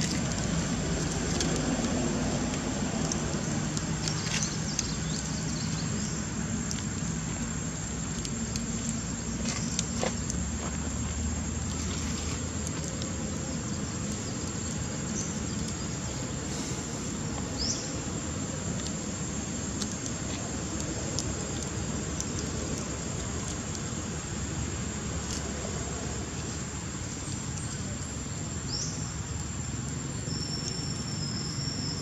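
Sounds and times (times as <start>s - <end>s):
low rumble of distant traffic: 0.0s - 32.0s
even hiss: 2.2s - 32.0s
faint clicks: 18.7s - 24.0s.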